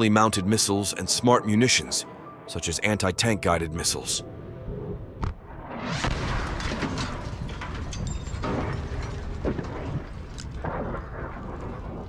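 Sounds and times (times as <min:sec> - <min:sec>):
large explosion: 0:04.8 - 0:12.0
debris crackling and clattering down: 0:06.1 - 0:12.0.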